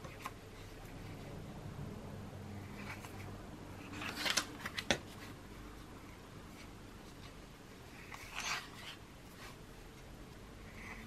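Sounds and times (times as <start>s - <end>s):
paper pages turning: 3.8s - 5.3s, 8.0s - 9.6s.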